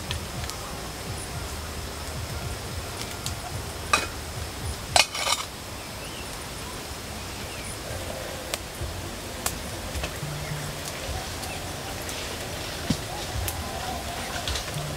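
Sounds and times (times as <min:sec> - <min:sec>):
utensil clinking on metal pot: 0:05.0 - 0:05.5.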